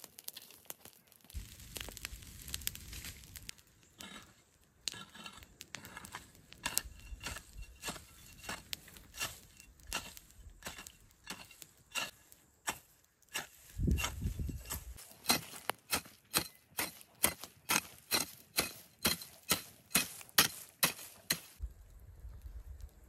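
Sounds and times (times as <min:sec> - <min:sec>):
hoe chopping into soil: 0:04.9 - 0:21.6.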